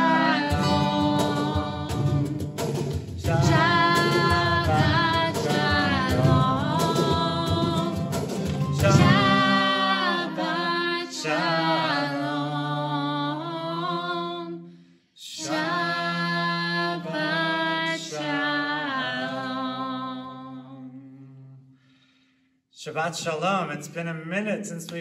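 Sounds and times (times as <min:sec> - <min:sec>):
man and woman singing: 0:00.0 - 0:14.5, 0:15.2 - 0:21.4.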